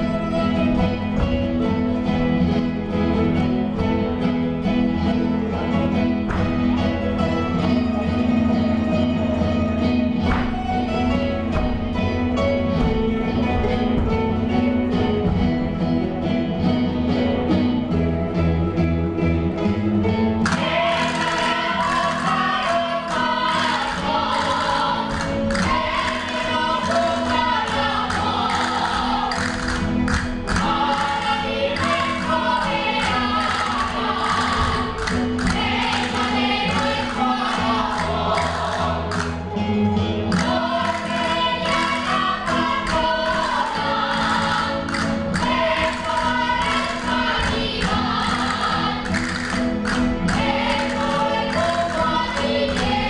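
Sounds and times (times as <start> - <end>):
plucked string instruments: 0.0 - 53.0
group of voices singing: 20.5 - 53.0.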